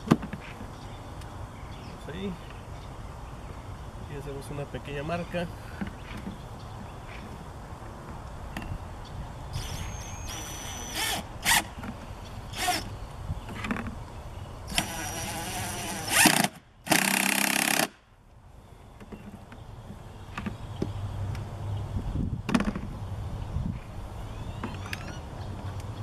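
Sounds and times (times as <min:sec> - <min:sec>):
cordless drill driving screw: 0:14.7 - 0:17.9.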